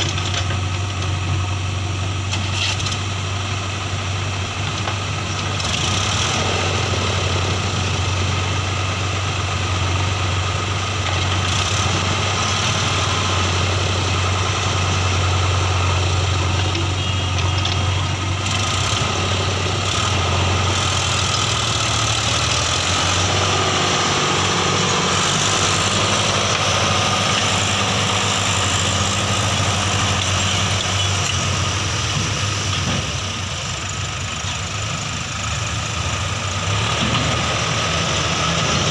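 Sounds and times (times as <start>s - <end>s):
diesel engines running: 0.0s - 38.9s.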